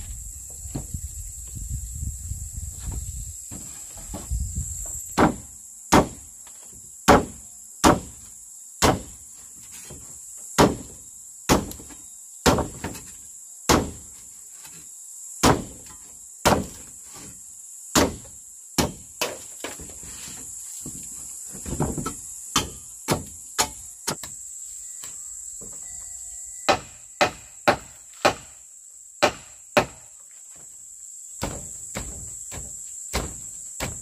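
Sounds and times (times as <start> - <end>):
insects buzzing: 0.0 - 34.0
hand tool striking wood: 5.1 - 8.2, 8.8 - 9.2, 9.8 - 10.9, 11.5 - 13.1, 13.7 - 14.8, 15.4 - 17.3, 17.9 - 24.4, 26.7 - 28.6, 29.2 - 30.0, 31.4 - 34.0.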